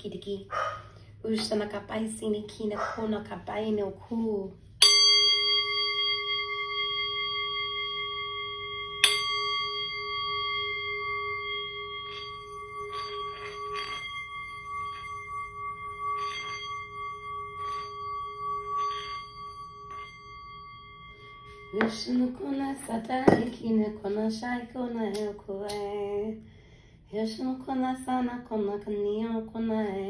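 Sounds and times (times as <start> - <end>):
metal bell ringing: 4.8 - 23.6.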